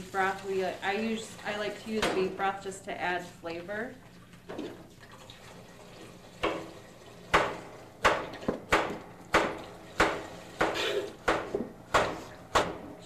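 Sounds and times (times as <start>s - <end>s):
knife chopping on cutting board: 7.4s - 12.8s.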